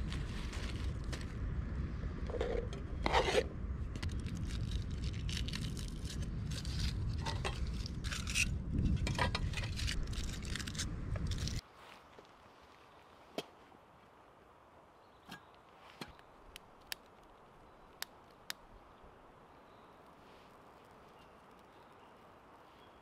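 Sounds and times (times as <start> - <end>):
wind rumbling on microphone: 0.0 - 11.6
handling scrapes and knocks: 2.3 - 11.6, 15.3 - 16.2.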